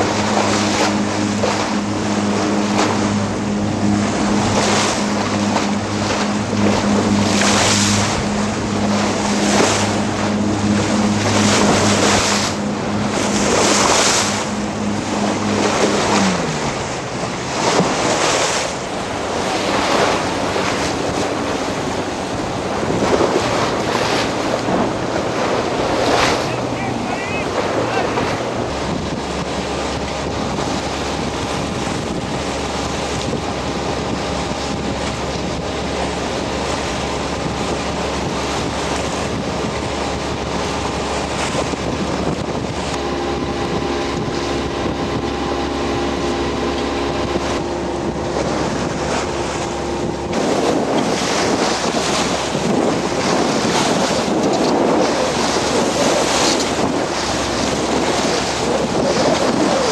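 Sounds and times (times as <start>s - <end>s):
low steady hum: 0.0s - 32.2s
waves splashing around boat: 0.0s - 59.9s
wind buffeting microphone: 0.0s - 59.9s.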